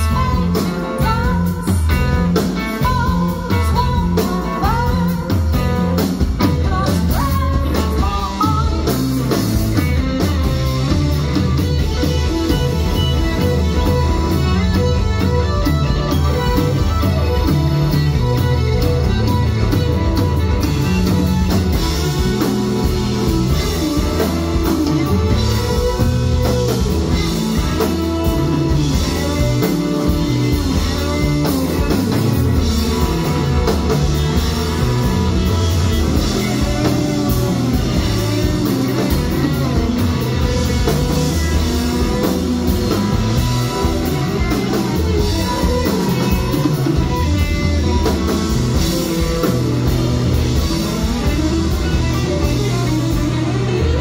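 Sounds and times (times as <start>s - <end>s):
drum kit: 0.0s - 54.0s
electric guitar: 0.0s - 54.0s
keyboards: 0.0s - 54.0s.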